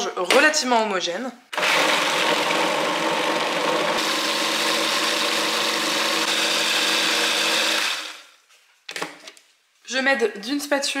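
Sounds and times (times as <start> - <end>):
food processor chopping: 1.6 - 8.3.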